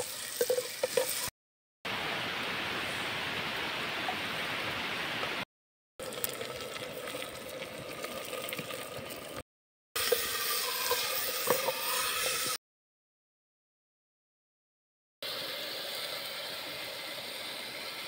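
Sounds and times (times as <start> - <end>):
tomato sizzling in a pot: 0.0 - 1.3, 10.0 - 12.6, 15.2 - 18.0
stream water running: 1.9 - 5.4, 6.0 - 9.4, 15.2 - 18.0.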